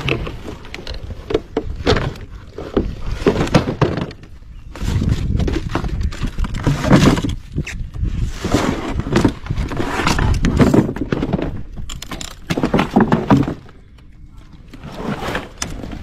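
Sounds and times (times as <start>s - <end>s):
wooden knocks and thuds: 1.3s - 4.3s, 5.0s - 7.4s, 10.4s - 13.8s.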